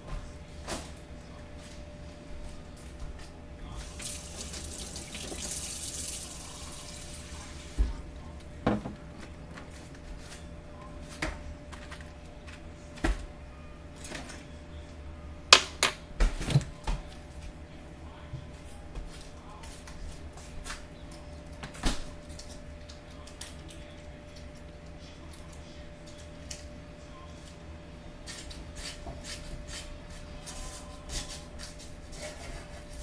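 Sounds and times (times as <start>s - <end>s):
knocks and clatters at counter: 8.6s - 9.3s.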